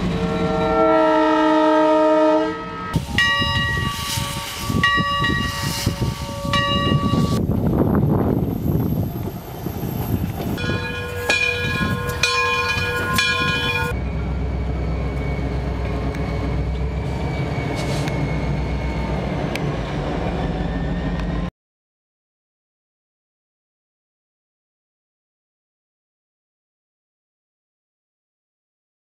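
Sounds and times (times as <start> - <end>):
multi-tone train horn: 0.0 - 7.4
diesel locomotive engine rumbling: 0.0 - 21.5
train rolling past: 0.0 - 21.5.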